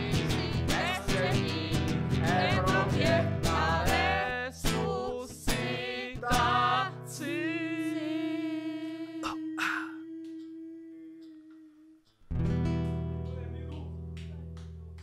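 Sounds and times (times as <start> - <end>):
voices singing: 0.0 - 12.0
acoustic guitar: 0.0 - 15.0.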